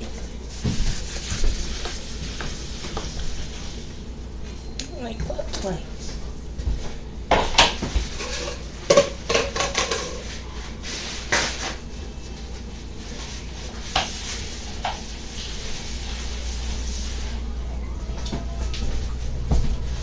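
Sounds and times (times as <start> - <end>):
dishes and cutlery clinking: 8.1 - 10.3.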